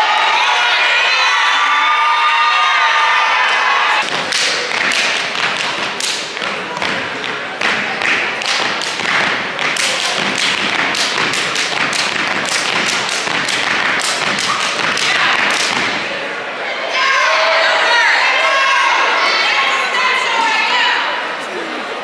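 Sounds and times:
crowd noise: 0:00.0 - 0:22.0
hands clapping in unison: 0:04.0 - 0:16.0.

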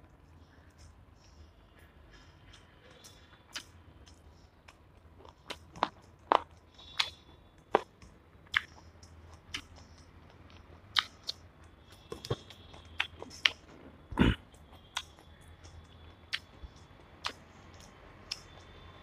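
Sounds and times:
person chewing food: 0:02.1 - 0:18.8.

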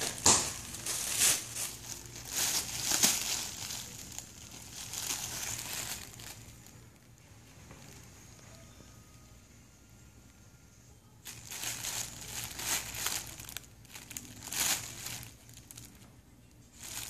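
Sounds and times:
plastic bag crinkling: 0:00.0 - 0:07.1, 0:11.2 - 0:17.0.

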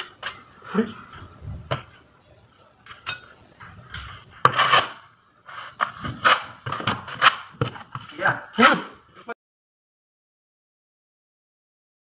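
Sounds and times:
putty knives scraping a wall: 0:04.0 - 0:09.3.

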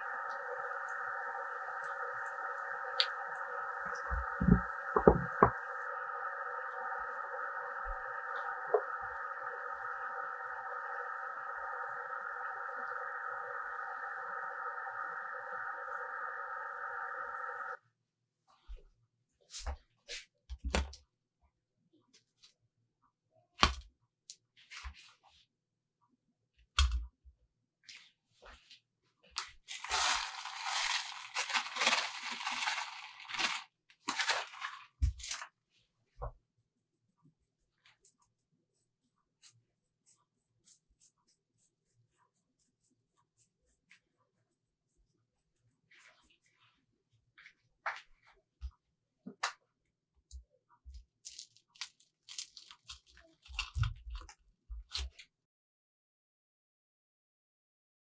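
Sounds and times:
paper bag crinkling: 0:29.6 - 0:35.5, 0:51.3 - 0:54.3
sugar pouring into sieve: 0:29.7 - 0:35.4
crunching and tearing fried crust: 0:29.7 - 0:35.5, 0:51.2 - 0:55.0.

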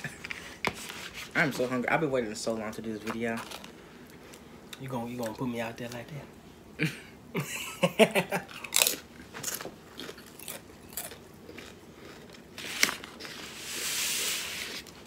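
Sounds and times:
crunching chips: 0:03.0 - 0:06.0, 0:08.4 - 0:15.0.

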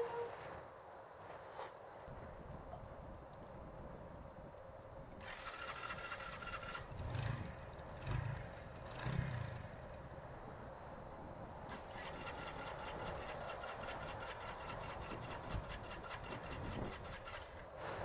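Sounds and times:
rapid even ticking: 0:11.7 - 0:17.6.

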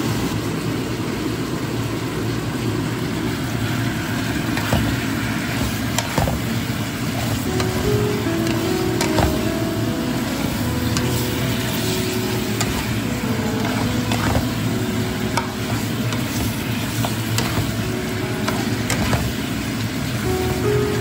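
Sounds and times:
food sizzling in a pan: 0:03.0 - 0:21.0.

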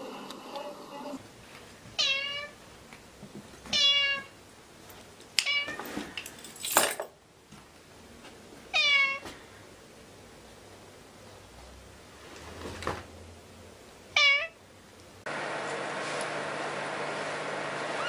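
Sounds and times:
cat meowing: 0:02.0 - 0:02.6, 0:03.7 - 0:04.3, 0:08.7 - 0:09.2, 0:14.2 - 0:14.6.

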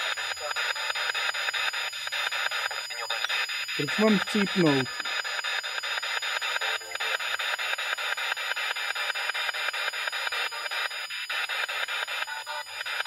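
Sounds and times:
radio static stepping rapidly: 0:00.0 - 0:10.1.

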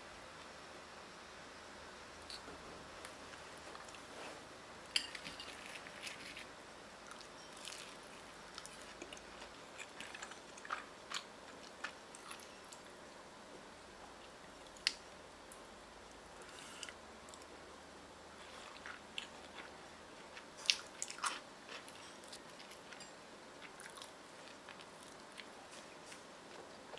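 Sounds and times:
person chewing with crunches: 0:07.1 - 0:12.8, 0:18.4 - 0:26.9.

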